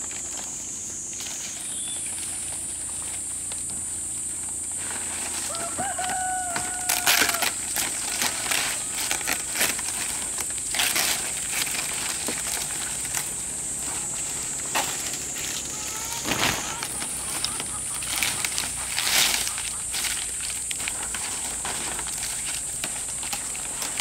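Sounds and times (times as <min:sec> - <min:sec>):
palm fronds rustling and crackling: 0:00.0 - 0:24.0.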